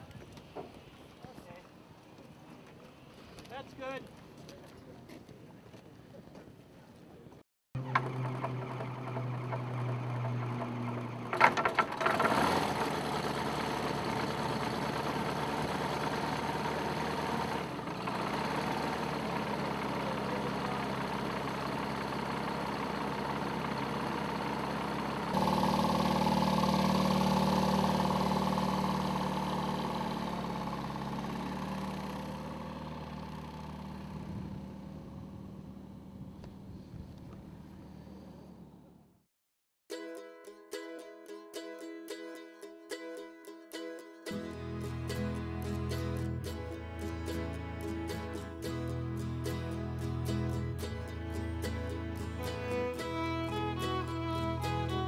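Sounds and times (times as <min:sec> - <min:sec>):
engine clattering burst: 0:07.8 - 0:35.6, 0:44.4 - 0:55.0
light aircraft piston engine: 0:44.5 - 0:55.0.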